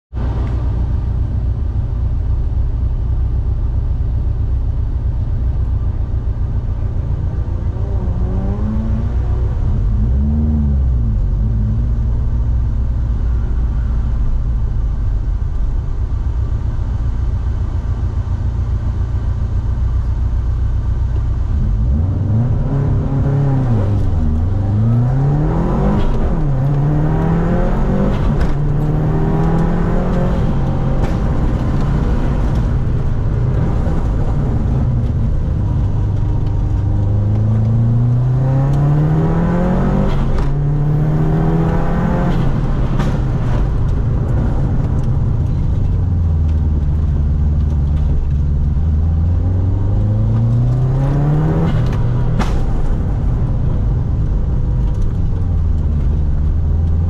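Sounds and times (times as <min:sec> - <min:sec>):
car engine revving: 0:06.6 - 0:12.4, 0:21.4 - 0:57.0
car accelerating hard: 0:07.1 - 0:12.0, 0:21.6 - 0:57.0.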